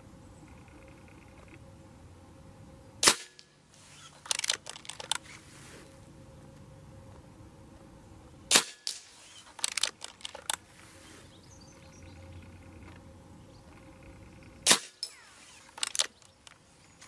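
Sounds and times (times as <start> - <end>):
air rifle shots cracking: 3.0 - 5.2, 8.5 - 10.6, 14.6 - 16.3.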